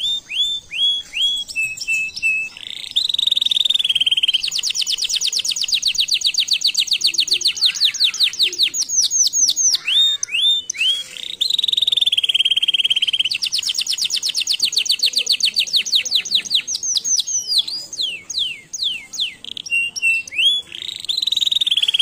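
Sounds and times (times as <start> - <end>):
canary singing trills: 0.0 - 22.0.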